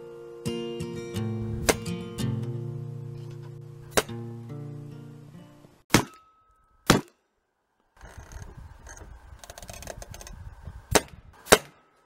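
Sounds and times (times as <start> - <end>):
acoustic guitar tune: 0.0 - 5.8
air rifle shots: 1.6 - 1.9, 6.8 - 7.2, 10.9 - 11.9.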